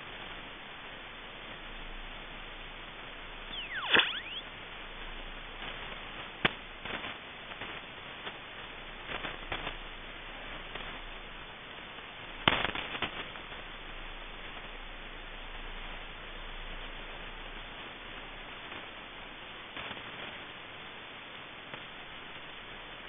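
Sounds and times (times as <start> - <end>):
radio static hiss: 0.0 - 23.0
static clicks and crackles: 0.0 - 23.0
radio whistle sweeping in pitch: 3.5 - 4.5.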